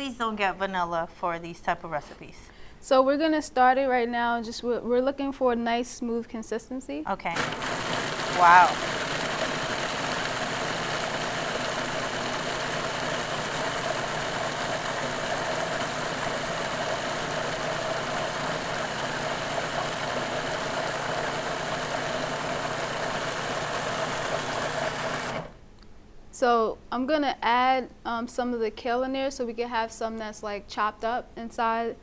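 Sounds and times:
food processor motor running: 7.3s - 25.6s.

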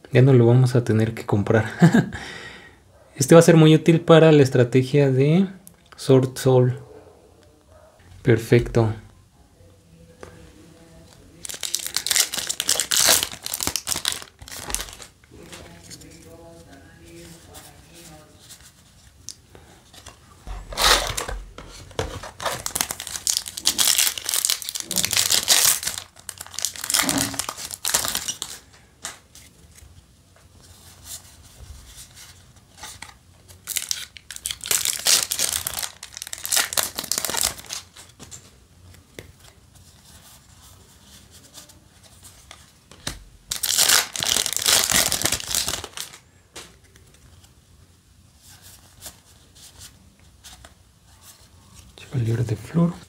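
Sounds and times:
foil wrapper crinkling and tearing: 11.3s - 15.2s, 20.6s - 29.1s, 32.8s - 38.2s, 43.5s - 46.2s.

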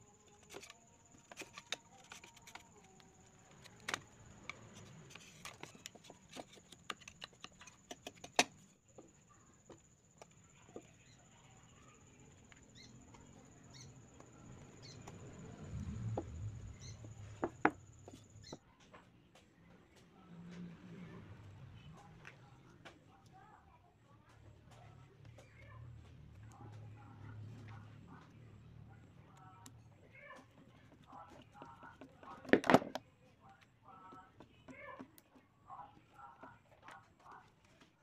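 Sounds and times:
handling rumble: 13.0s - 18.5s.

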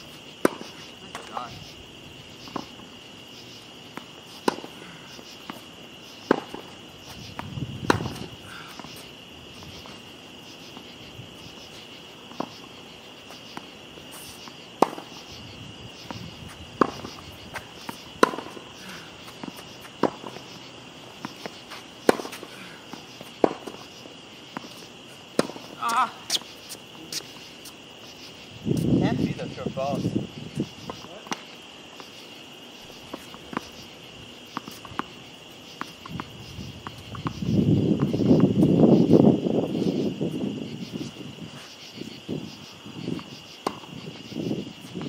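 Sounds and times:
night insects chirring: 0.0s - 45.0s
tennis balls bouncing on hard court: 0.4s - 1.4s, 3.9s - 4.8s, 5.4s - 10.0s, 13.3s - 15.2s, 16.0s - 27.3s, 30.8s - 32.2s, 33.0s - 33.8s, 34.5s - 38.7s, 43.1s - 43.9s
tennis balls struck by racquets: 0.4s - 1.4s, 3.9s - 9.0s, 13.5s - 15.3s, 16.0s - 27.3s, 34.4s - 37.4s, 43.1s - 43.9s.

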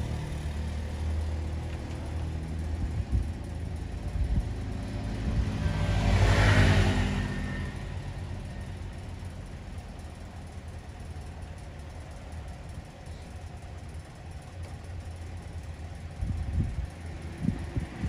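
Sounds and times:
vehicle engine rumble: 0.0s - 18.0s.

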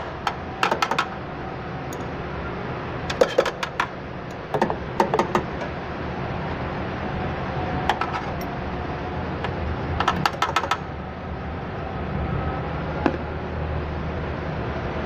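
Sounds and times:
wrench clicking on metal nut: 10.0s - 10.8s.

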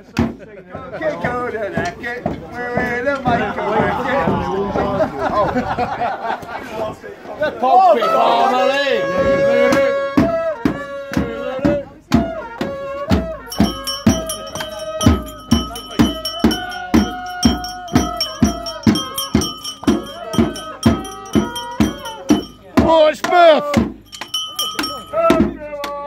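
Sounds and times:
bass drum beating: 13.5s - 22.9s.

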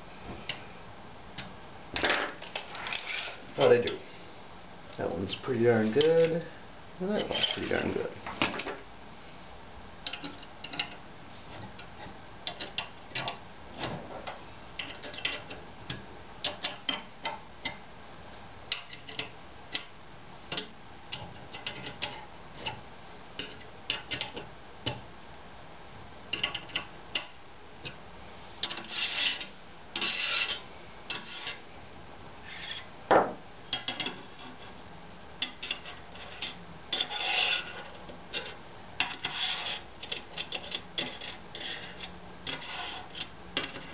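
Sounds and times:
metal rail scraping: 2.6s - 4.0s, 28.6s - 31.6s, 32.4s - 32.9s, 35.5s - 39.8s, 40.4s - 43.9s.

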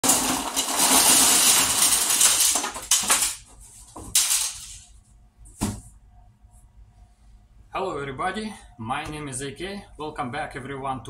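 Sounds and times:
circuit boards clattering on table: 0.1s - 4.8s.

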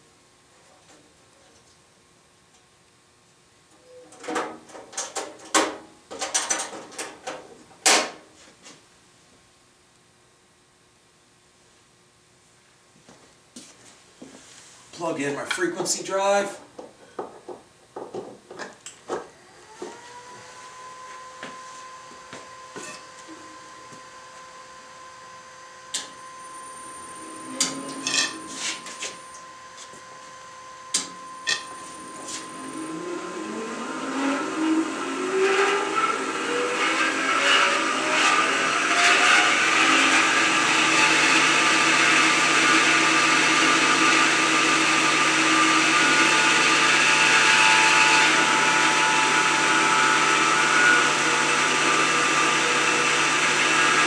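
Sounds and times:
knocks and rattles of parts: 4.1s - 8.2s
electric motor whining: 25.1s - 54.0s.

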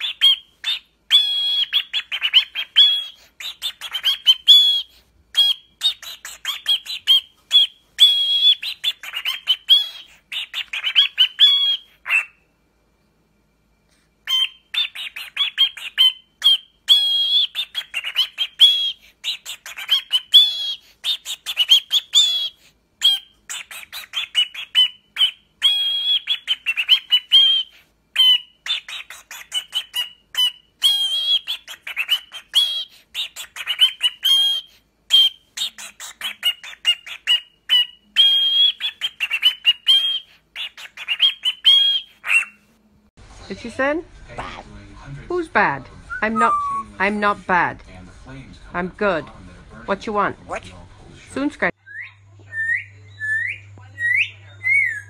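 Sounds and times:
cockatiel chirping and warbling: 0.0s - 12.4s, 14.2s - 42.7s, 51.9s - 55.0s.

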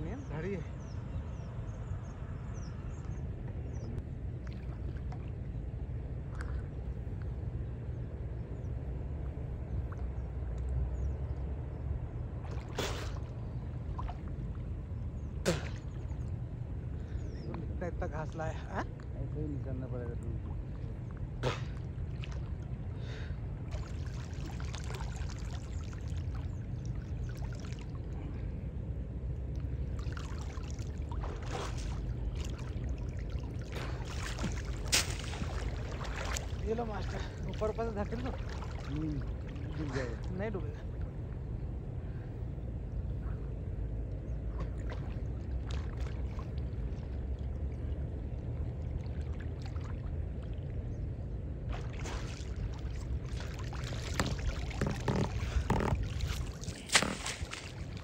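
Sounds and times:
steady low rumble: 0.0s - 58.0s
water sloshing around waders: 2.5s - 7.4s, 9.3s - 28.6s, 29.5s - 43.4s, 44.3s - 58.0s
short sharp splash: 12.4s - 13.4s, 15.4s - 16.0s, 21.4s - 21.8s, 30.0s - 37.7s, 51.7s - 58.0s
person surfacing with splash: 31.1s - 32.6s, 33.6s - 37.6s, 51.7s - 58.0s
sharp slap: 34.9s - 35.4s.

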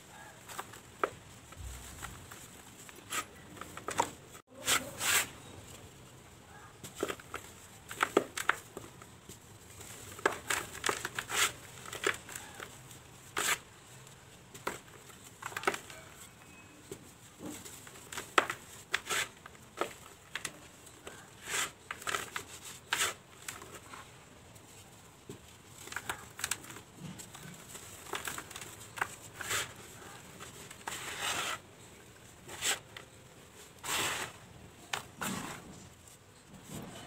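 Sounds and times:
dirt powder sifting into tub: 30.8s - 31.6s, 33.8s - 34.4s.

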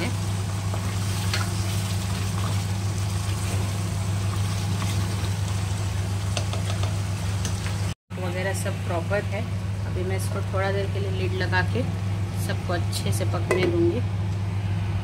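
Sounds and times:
meat sizzling in a pot: 0.0s - 8.0s.

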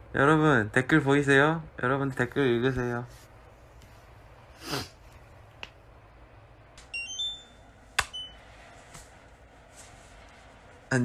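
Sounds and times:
electronic beeping tones: 6.9s - 8.5s.

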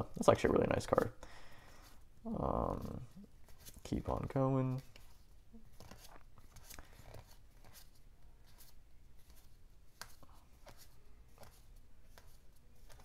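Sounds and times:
cards flicking and sliding: 4.8s - 13.0s.

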